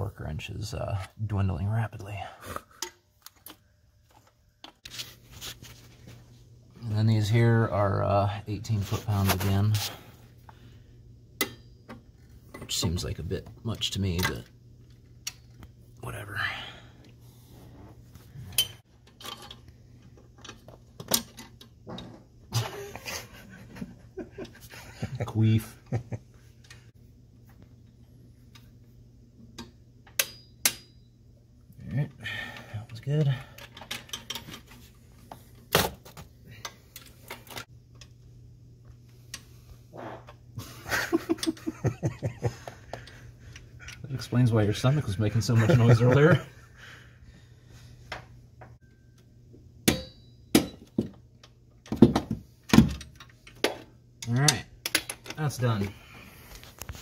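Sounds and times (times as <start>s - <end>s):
steady low hum: 0.0s - 57.0s
metallic clanks of hand tools: 11.4s - 11.8s, 29.6s - 31.1s, 49.8s - 51.0s.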